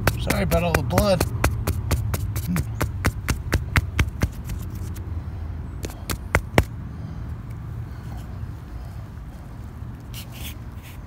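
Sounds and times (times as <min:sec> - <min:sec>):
stick prying in rock rubble: 0:00.0 - 0:04.6.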